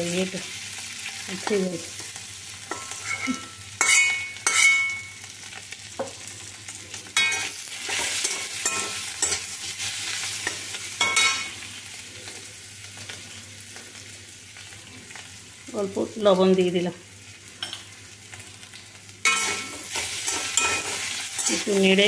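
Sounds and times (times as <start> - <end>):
potatoes sizzling in oil: 0.0 - 22.0
metal spatula scraping pan: 2.7 - 5.0, 19.2 - 21.8.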